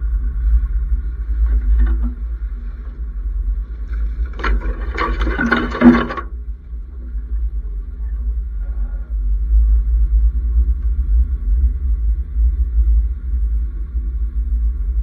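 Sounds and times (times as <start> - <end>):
vehicle rumbling on rough track: 0.0 - 15.0
branches scraping vehicle: 3.6 - 6.4.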